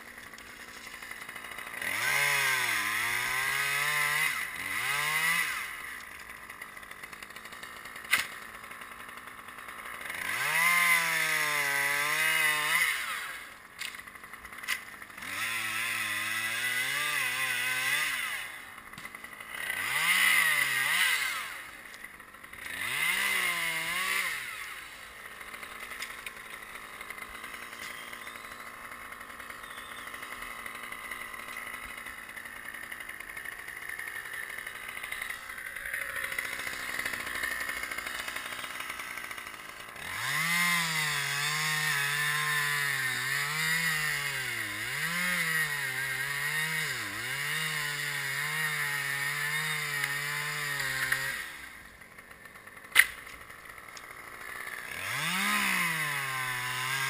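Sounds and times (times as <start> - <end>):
chainsaw cutting wood: 0.0 - 57.0
sharp click: 8.1 - 8.3, 52.9 - 53.4
steady engine running: 21.4 - 41.4.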